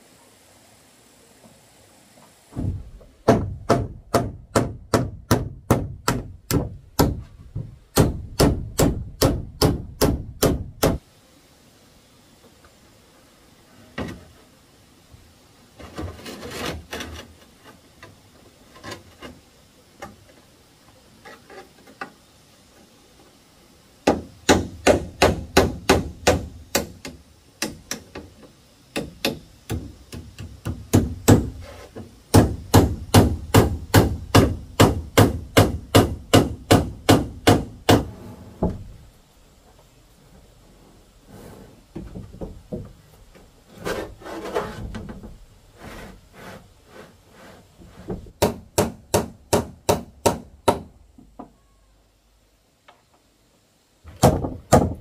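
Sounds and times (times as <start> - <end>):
hammer striking nails: 2.6 - 7.3, 7.9 - 11.0, 24.1 - 28.2, 28.9 - 31.6, 32.3 - 38.1, 48.4 - 50.9, 54.2 - 55.0.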